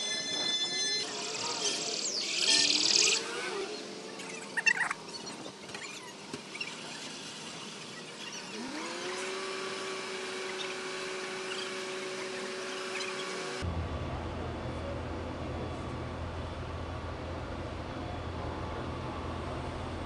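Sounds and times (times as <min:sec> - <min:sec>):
rising whine: 0:00.0 - 0:05.6.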